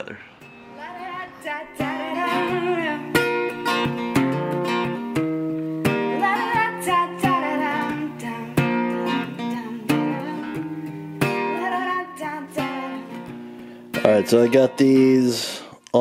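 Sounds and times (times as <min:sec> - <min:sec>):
acoustic guitar strumming: 0:00.0 - 0:15.7
person singing: 0:00.7 - 0:03.7, 0:05.9 - 0:10.7, 0:11.5 - 0:13.3, 0:14.0 - 0:16.0.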